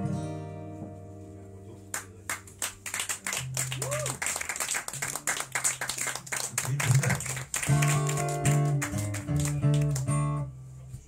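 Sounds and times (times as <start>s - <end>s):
guitar chords: 0.0s - 3.8s, 7.2s - 10.8s
people clapping: 1.9s - 10.3s.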